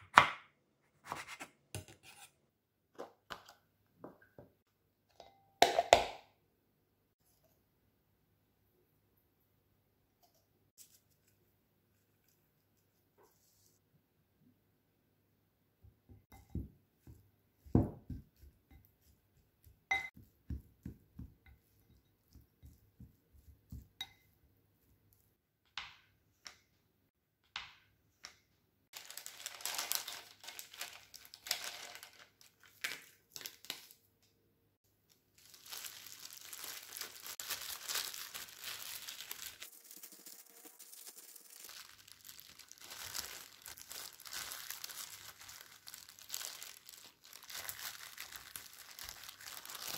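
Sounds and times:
plastic gloves crinkling: 28.9s - 34.1s, 35.1s - 49.9s
plastic pack crinkling: 29.0s - 34.0s, 35.3s - 49.9s.

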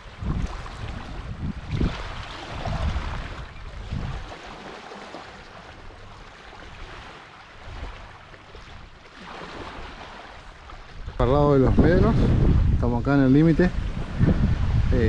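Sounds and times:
wind buffeting microphone: 0.0s - 4.6s, 9.5s - 15.0s
small waves lapping shore: 0.0s - 15.0s.

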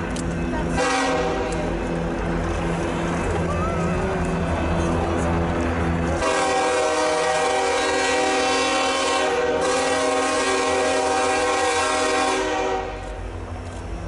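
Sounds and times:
train rumbling: 0.0s - 14.0s
locomotive air horn blast: 0.7s - 1.5s, 6.2s - 13.2s.

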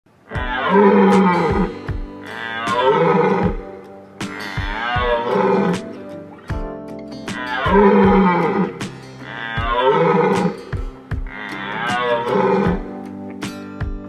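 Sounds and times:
steady drum beat: 0.4s - 14.0s
melodic phrase with gliding pitch: 0.5s - 10.4s.

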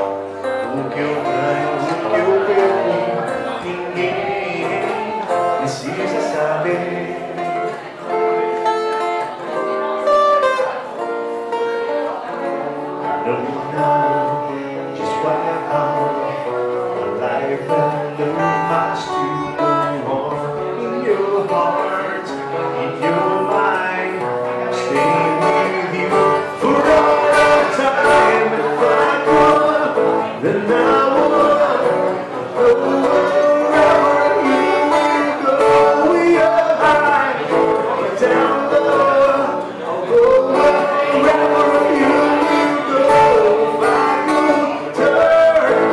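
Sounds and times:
man singing into microphone: 0.0s - 8.2s, 13.0s - 45.9s
acoustic guitar: 0.0s - 45.9s.

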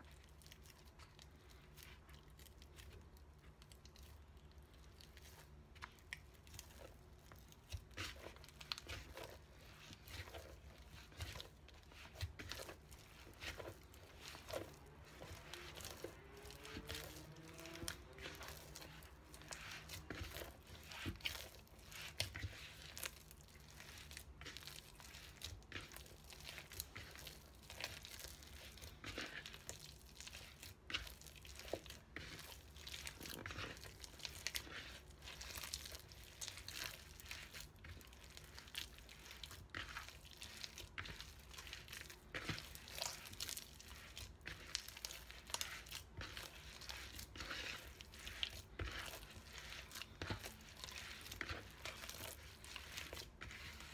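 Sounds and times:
dough squishing in plastic bowl: 0.0s - 53.9s.

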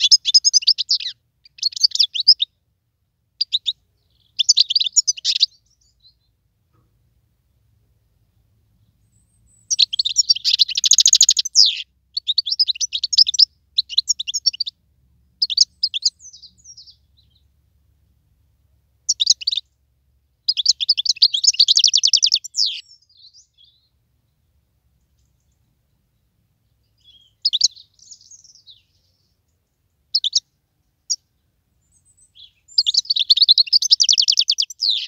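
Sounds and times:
goldfinch twittering trills: 3.5s - 5.9s, 9.6s - 14.7s, 19.1s - 19.6s, 20.5s - 23.8s, 27.0s - 29.0s, 30.2s - 30.4s, 32.0s - 35.0s.

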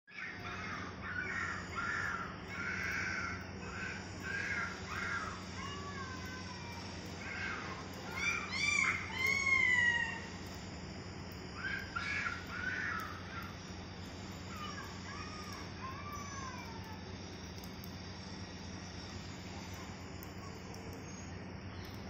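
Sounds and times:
crows cawing: 0.2s - 10.5s, 11.6s - 13.7s, 14.5s - 16.8s.

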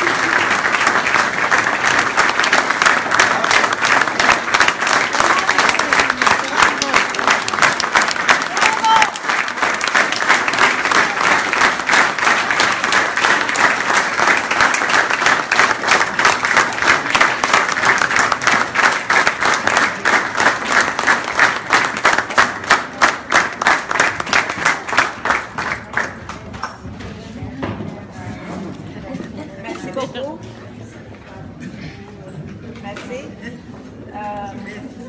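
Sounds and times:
audience applauding: 0.0s - 26.8s
rhythmic clapping in unison: 0.0s - 26.8s.

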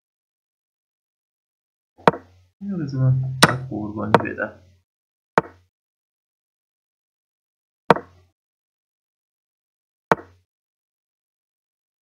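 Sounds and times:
sharp wooden knocks: 2.0s - 2.3s, 3.4s - 4.4s, 5.4s - 5.7s, 7.9s - 8.2s, 10.1s - 10.4s.

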